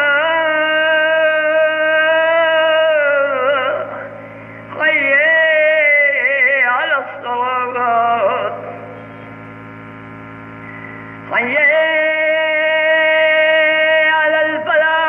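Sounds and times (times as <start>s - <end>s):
mains hum: 0.0s - 15.0s
old man chanting: 11.3s - 15.0s.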